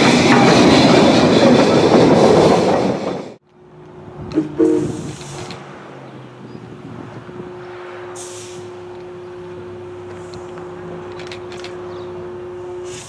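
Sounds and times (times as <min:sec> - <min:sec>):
locomotive low hum: 0:00.0 - 0:13.0
hiss of air or steam: 0:04.6 - 0:05.6, 0:08.1 - 0:08.7, 0:12.8 - 0:13.0.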